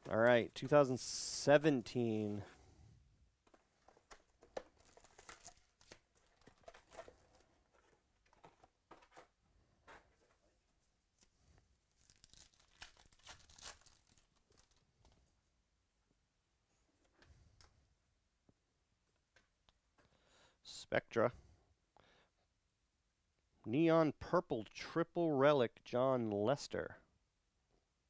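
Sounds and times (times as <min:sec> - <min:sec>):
foil wrappers crinkling: 0:03.5 - 0:09.3, 0:11.9 - 0:14.9.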